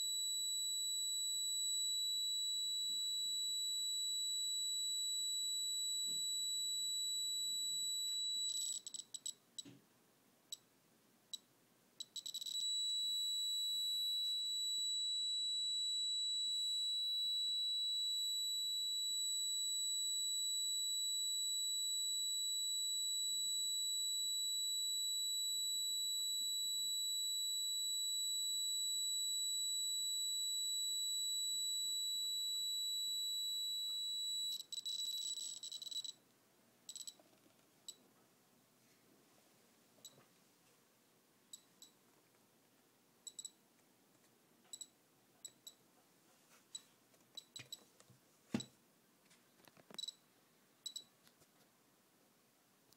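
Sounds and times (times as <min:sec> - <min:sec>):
high-pitched electronic alarm tone: 0:00.0 - 0:09.3, 0:12.1 - 0:36.1.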